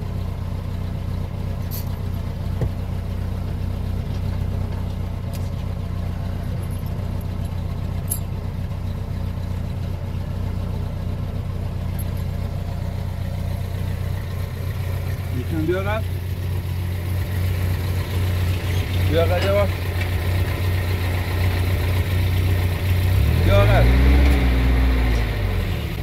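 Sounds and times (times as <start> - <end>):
vehicle engine droning: 0.0 - 26.0.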